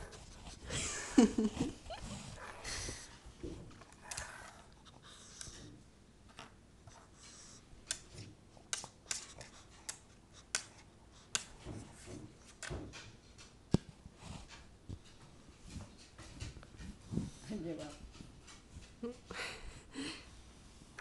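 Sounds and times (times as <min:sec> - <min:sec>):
dog sniffing: 0:06.9 - 0:12.0.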